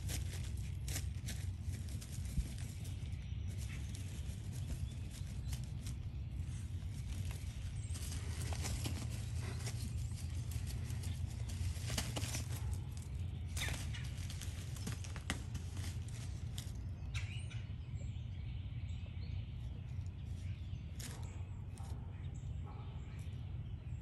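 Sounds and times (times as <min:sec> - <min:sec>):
pine needles crackling: 0:00.0 - 0:17.4
low hum: 0:00.0 - 0:24.0.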